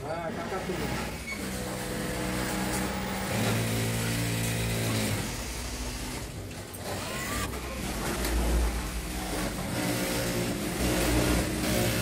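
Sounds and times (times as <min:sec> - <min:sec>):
sewing machines humming: 0:00.0 - 0:12.0.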